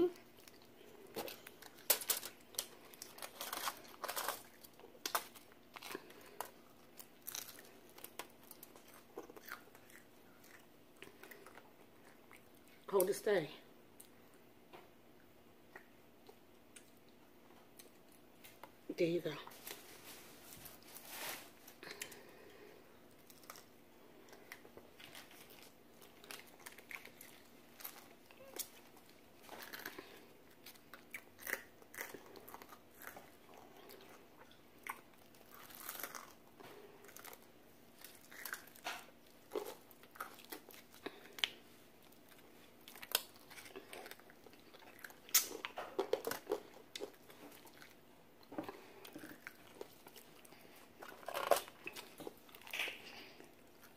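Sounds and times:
quiet chewing: 0:00.0 - 0:13.0, 0:13.9 - 0:18.8, 0:21.6 - 0:53.9
crunching fried chicken: 0:00.2 - 0:12.6, 0:21.1 - 0:48.0.

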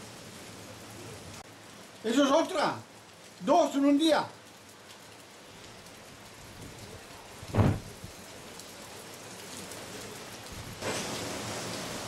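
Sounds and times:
heavy rain hissing: 0:00.0 - 0:12.0
low thump: 0:07.5 - 0:08.0.

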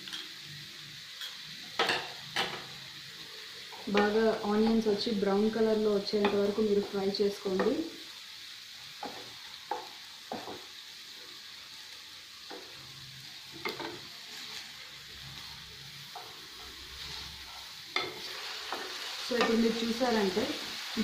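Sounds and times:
onions sizzling in hot oil: 0:00.0 - 0:21.0
spatula scraping a pan: 0:13.6 - 0:14.8, 0:15.4 - 0:19.6.

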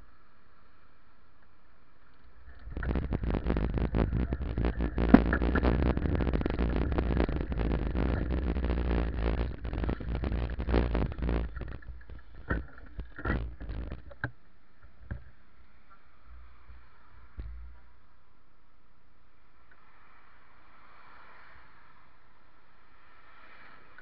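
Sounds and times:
faint steady hiss: 0:00.0 - 0:24.0
bicycle road rattle: 0:02.4 - 0:14.3
wind buffeting: 0:02.5 - 0:14.1.

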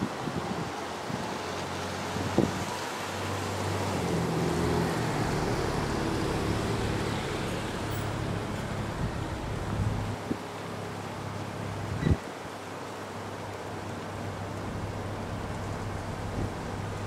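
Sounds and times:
vehicle engine hum: 0:00.9 - 0:10.3, 0:14.2 - 0:17.0.

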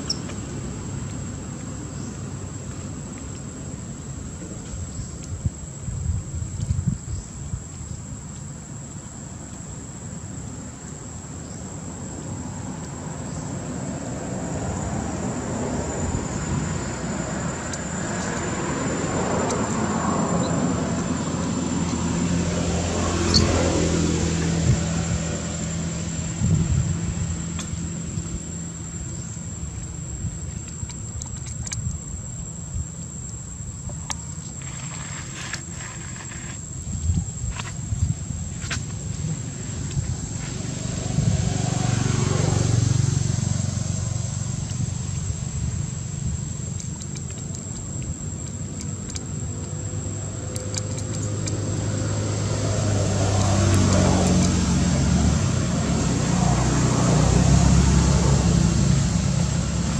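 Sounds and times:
high insect drone: 0:00.0 - 0:59.9
vehicle engine passing by: 0:12.4 - 0:29.8, 0:38.6 - 0:46.4, 0:49.9 - 0:59.9.

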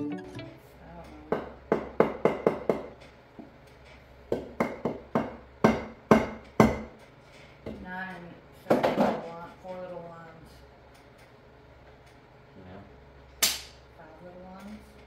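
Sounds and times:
sharp knocks on wooden bench: 0:04.3 - 0:06.9.

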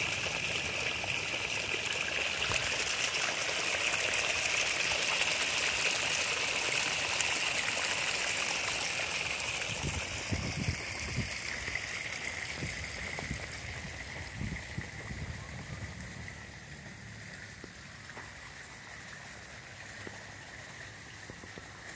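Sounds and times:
water rushing over rocks: 0:00.0 - 0:15.3.

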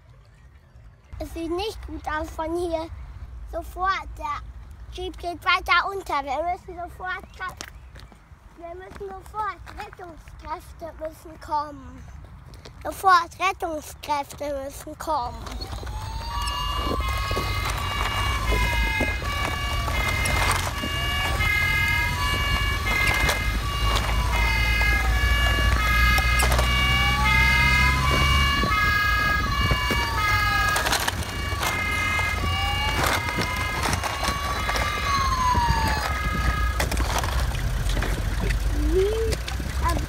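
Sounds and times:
toy siren wailing: 0:15.3 - 0:37.4
stepped toy siren: 0:15.3 - 0:37.6.

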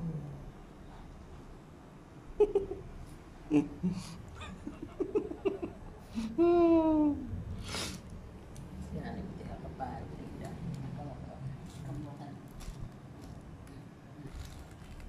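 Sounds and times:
person giggling: 0:02.4 - 0:02.9, 0:03.5 - 0:07.3.

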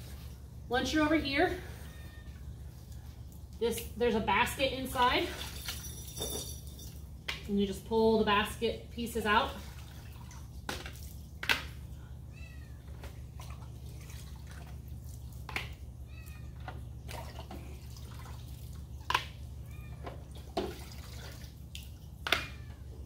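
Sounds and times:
cat meowing: 0:12.3 - 0:12.8
water dripping: 0:20.3 - 0:22.5.

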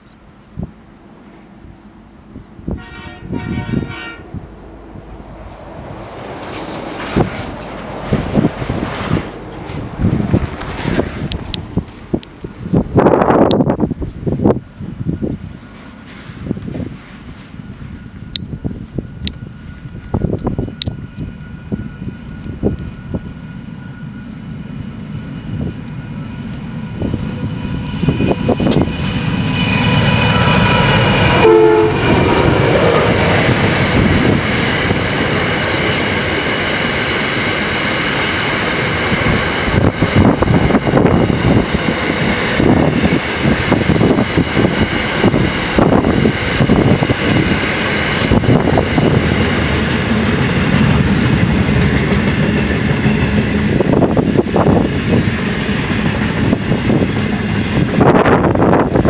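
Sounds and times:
freight train rumbling past: 0:00.0 - 0:59.0
train horn: 0:02.7 - 0:04.4, 0:29.6 - 0:33.6
wheels clacking over rail joints: 0:05.4 - 0:12.9, 0:28.5 - 0:58.0.

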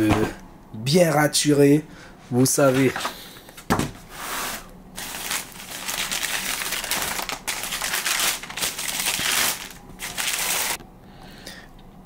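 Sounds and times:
wrapping crinkling and rustling: 0:05.0 - 0:10.8.

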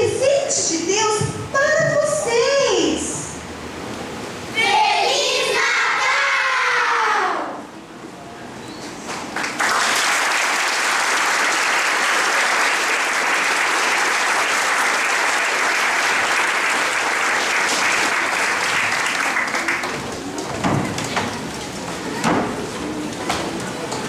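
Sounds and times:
audience applauding: 0:09.2 - 0:20.4.

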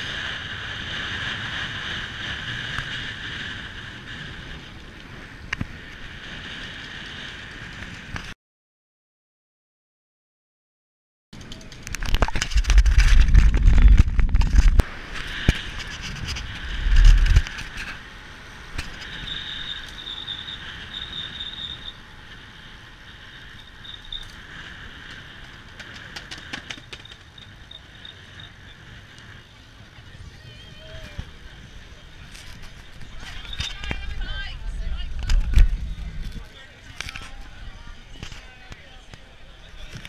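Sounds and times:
wind buffeting microphone: 0:00.0 - 0:08.3, 0:11.4 - 0:40.0
rush of tyres and air: 0:00.0 - 0:08.4, 0:11.4 - 0:40.0
scattered clicks: 0:11.4 - 0:18.0.

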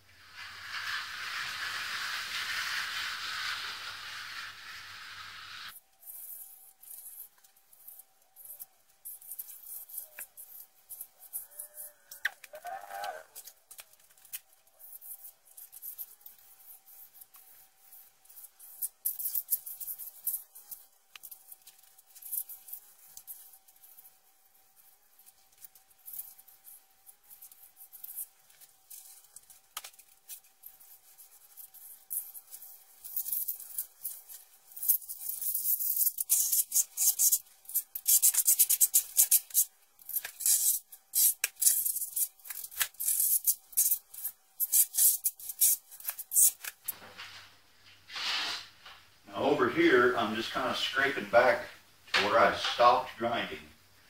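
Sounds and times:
float pad rubbing wet concrete: 0:00.3 - 0:05.7.

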